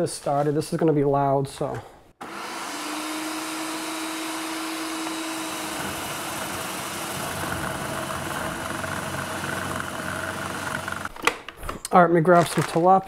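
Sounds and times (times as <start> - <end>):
food processor grinding frozen fish: 2.2 - 11.1.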